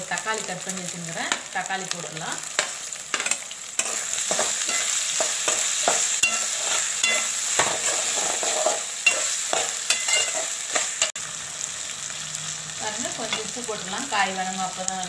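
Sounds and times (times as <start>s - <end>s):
vegetables sizzling in hot oil: 0.0s - 15.0s
metal spatula scraping pan: 2.6s - 11.1s.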